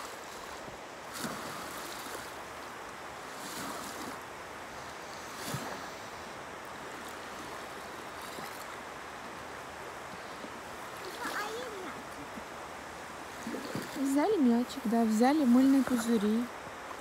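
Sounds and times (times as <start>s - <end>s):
small waves washing onto beach: 0.0s - 17.0s
wind: 0.0s - 17.0s.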